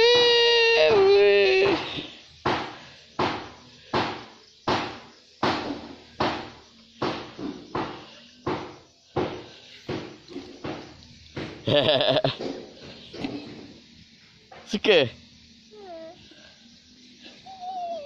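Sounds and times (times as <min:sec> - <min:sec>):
sharp knocks: 0:01.6 - 0:13.7.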